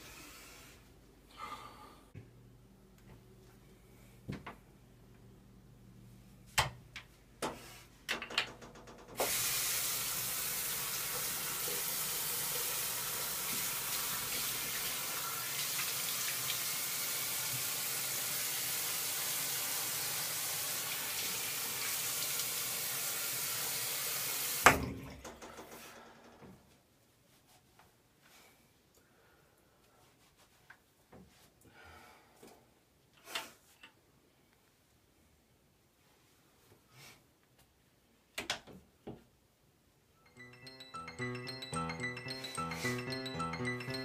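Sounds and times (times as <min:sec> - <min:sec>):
man washing face: 0:09.2 - 0:24.6
faucet running into sink: 0:09.2 - 0:24.8.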